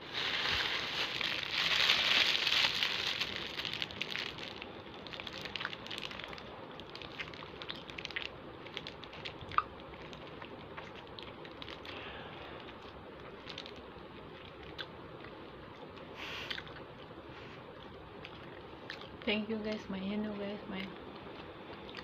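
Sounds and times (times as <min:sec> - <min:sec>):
plastic bag crinkling: 0:00.0 - 0:12.7, 0:13.4 - 0:13.8.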